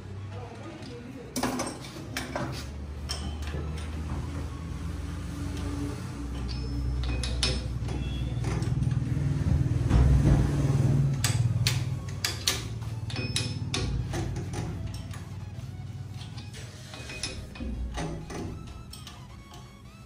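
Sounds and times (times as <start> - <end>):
metallic clinks and knocks: 1.4 - 4.0, 6.3 - 8.9, 11.2 - 15.4, 16.2 - 19.9.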